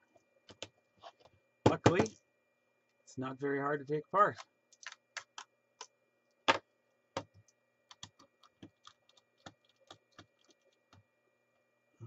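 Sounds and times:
plastic case clicking and knocking: 1.7s - 2.2s.

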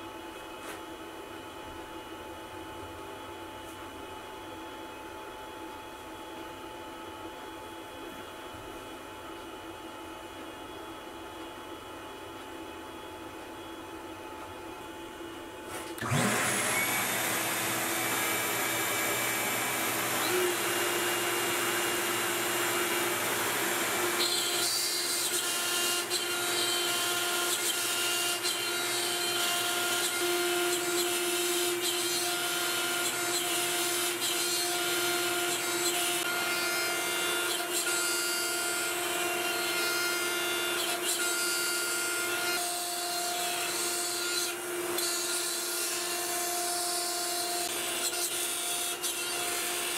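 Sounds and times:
vacuum motor whine: 15.7s - 42.6s
router cutting wood: 15.8s - 49.9s.

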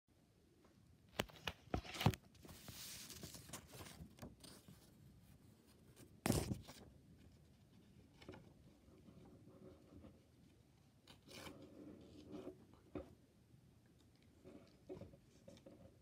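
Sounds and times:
paper rustling: 1.2s - 5.0s
card sliding across paper: 2.5s - 3.9s.

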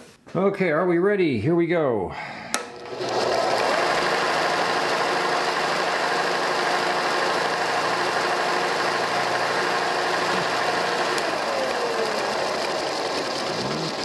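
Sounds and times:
sander motor hum and whir: 2.8s - 14.0s.

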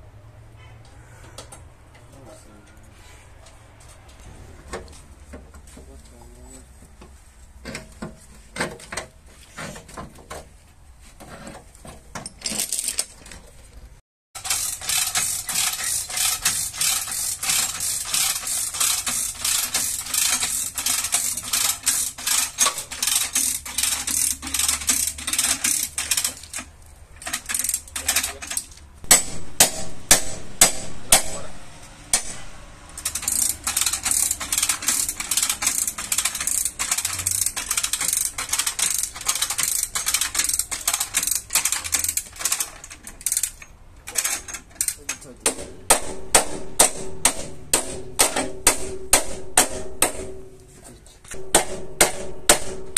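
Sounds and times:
ratchet clicking: 14.4s - 30.2s, 32.9s - 45.2s.

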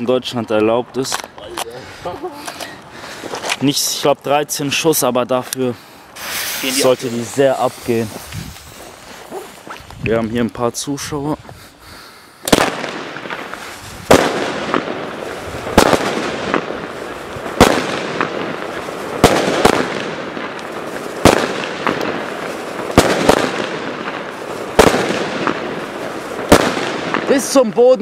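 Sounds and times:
fireworks crackling: 0.7s - 28.0s
fireworks bangs: 6.1s - 10.0s, 12.4s - 28.0s.

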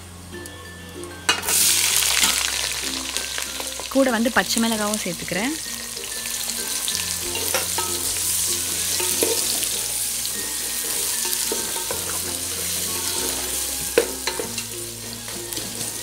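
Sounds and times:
soft background music: 0.0s - 16.0s
onions sizzling in hot oil: 0.2s - 16.0s
wooden spatula scraping metal pot: 6.2s - 16.0s.

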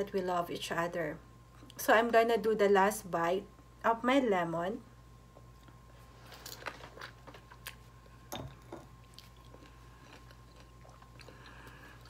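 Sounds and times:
person chewing lemon: 5.4s - 12.0s.

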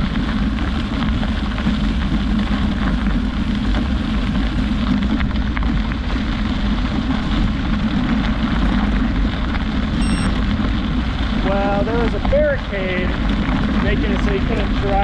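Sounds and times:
wind rushing over microphone: 0.0s - 15.0s
brief high tone: 10.0s - 10.3s.

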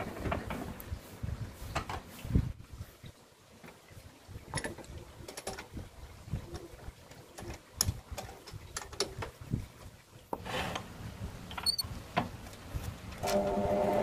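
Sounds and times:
small metal clicks and knocks: 4.5s - 5.8s, 7.3s - 9.4s.

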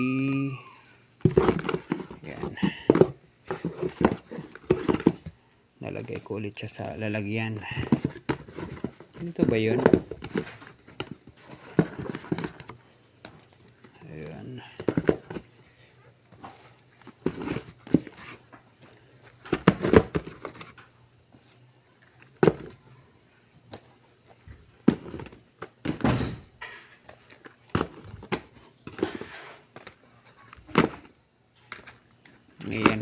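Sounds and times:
cardboard boxes knocking and scraping: 1.2s - 5.4s, 7.3s - 12.8s, 14.4s - 15.5s, 16.4s - 18.5s, 19.3s - 20.8s, 22.3s - 22.8s, 24.5s - 26.2s, 27.1s - 30.0s.

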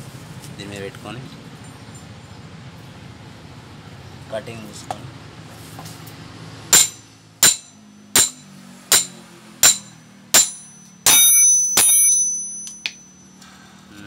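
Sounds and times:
hammer striking metal: 6.7s - 13.4s.

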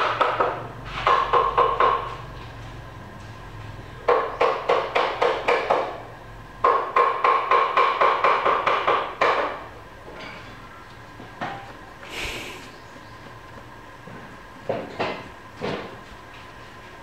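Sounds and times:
rapid hollow knocking: 0.0s - 2.2s, 4.1s - 6.0s, 6.6s - 9.7s.

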